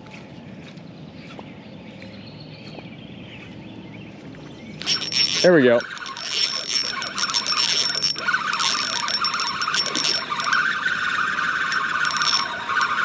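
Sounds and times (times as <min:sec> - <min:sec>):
fishing reel whining: 0:04.8 - 0:13.0.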